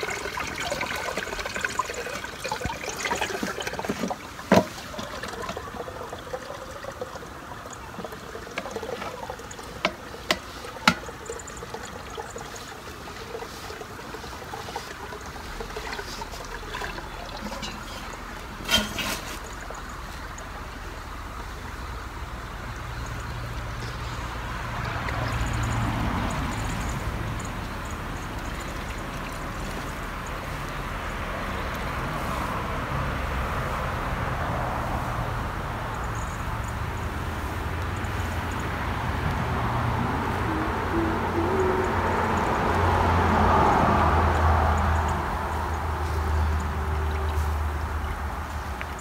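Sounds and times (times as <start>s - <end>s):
liquid pouring through a strainer: 0.0s - 20.6s, 23.1s - 30.9s.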